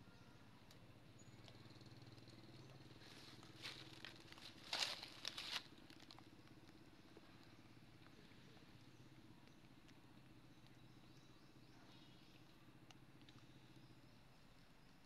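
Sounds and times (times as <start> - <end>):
faint low hum: 0.0 - 15.0
dry leaves rustling and crackling: 3.0 - 6.3.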